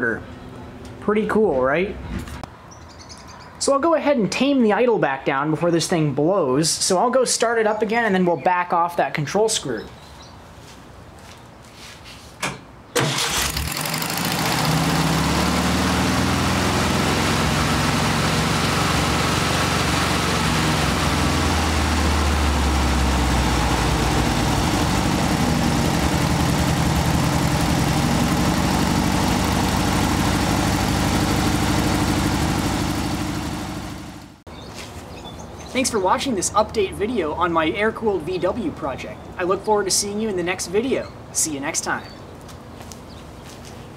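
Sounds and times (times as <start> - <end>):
car engine starting and idling: 12.9 - 34.4.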